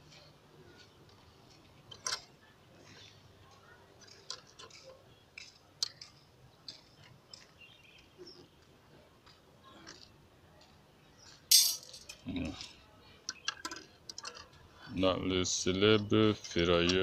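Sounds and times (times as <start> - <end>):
metallic clicks of rebar bending: 11.5 - 12.2.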